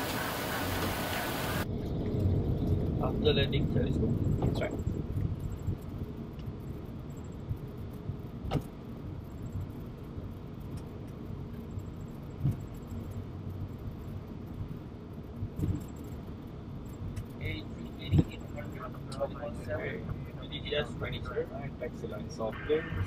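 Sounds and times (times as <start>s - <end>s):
low rumble with faint hum: 0.0s - 23.0s.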